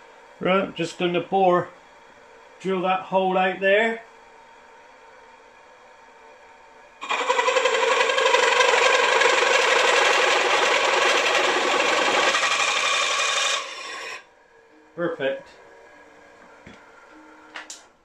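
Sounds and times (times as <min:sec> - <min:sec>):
machine running: 0:00.0 - 0:18.0
drill cutting into metal: 0:07.0 - 0:14.2.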